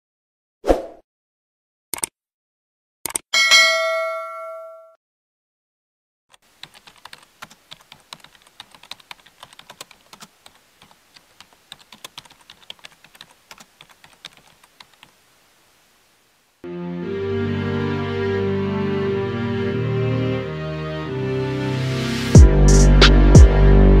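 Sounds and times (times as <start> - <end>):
keyboard typing clicks: 6.3 - 15.1
music: 16.6 - 24.0.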